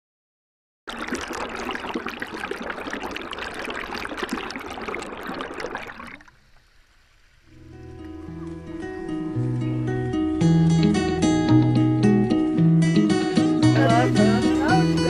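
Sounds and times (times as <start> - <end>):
music: 7.6 - 15.0.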